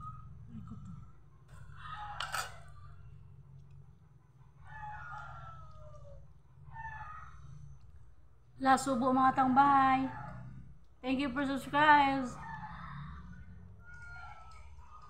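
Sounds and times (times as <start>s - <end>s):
rooster crowing: 4.4s - 7.2s.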